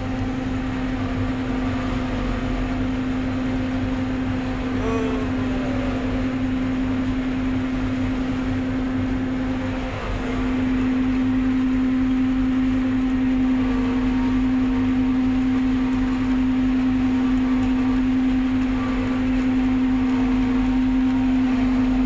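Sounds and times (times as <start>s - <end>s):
harvester machine drone: 0.0s - 22.0s.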